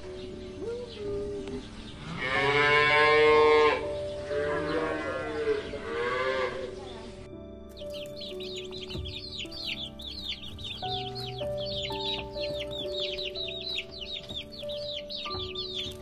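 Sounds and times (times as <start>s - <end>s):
cow mooing: 2.0s - 6.7s.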